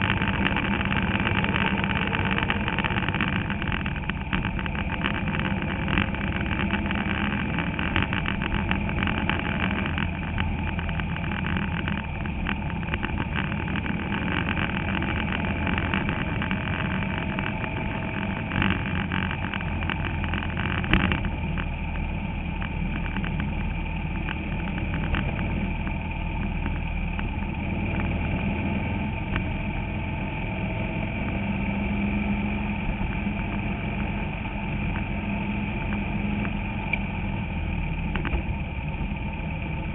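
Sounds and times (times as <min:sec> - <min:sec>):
car rattling: 0:00.0 - 0:21.7
race car engine at speed: 0:00.0 - 0:39.9.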